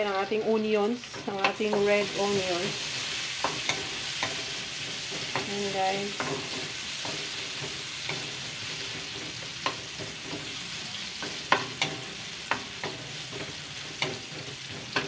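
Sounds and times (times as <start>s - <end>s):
onions sizzling in oil: 0.0s - 15.0s
metal spatula clinking on pan: 11.2s - 15.0s.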